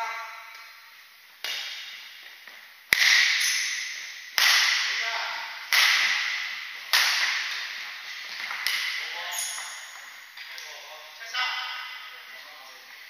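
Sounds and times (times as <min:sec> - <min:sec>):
rackets hitting shuttlecock: 0:01.4 - 0:10.7.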